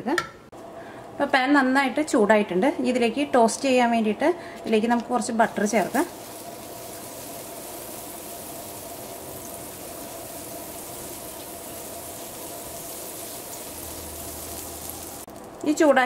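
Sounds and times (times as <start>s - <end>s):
butter sizzling in a pan: 5.4s - 15.9s.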